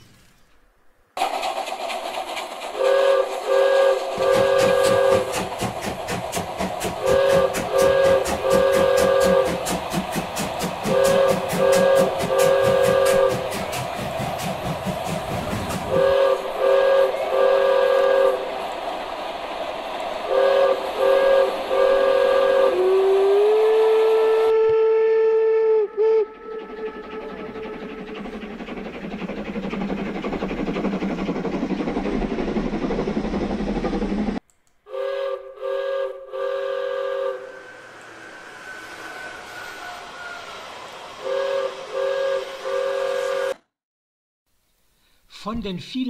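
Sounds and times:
train rolling: 0.0s - 34.4s, 35.0s - 43.6s
steam locomotive whistle blasts: 2.8s - 5.5s, 6.9s - 9.8s, 10.8s - 13.8s, 15.7s - 18.5s, 20.3s - 27.9s, 34.9s - 43.7s.

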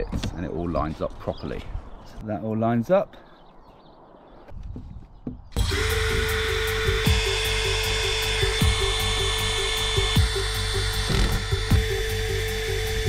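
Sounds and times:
cordless drill boring sheet metal: 5.6s - 13.0s
music with steady beat: 5.6s - 13.0s.

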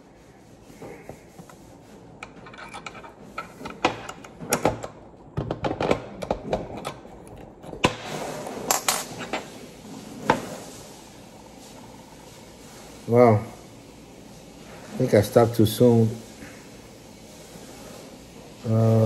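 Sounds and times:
rubbing and scraping: 0.0s - 4.5s.

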